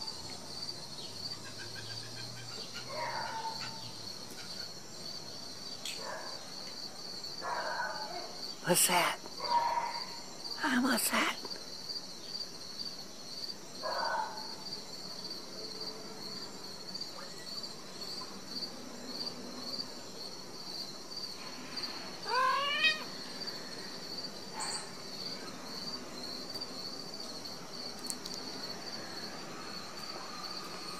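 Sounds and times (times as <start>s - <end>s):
crickets chirping: 0.0s - 30.9s
cat meowing: 22.2s - 23.1s.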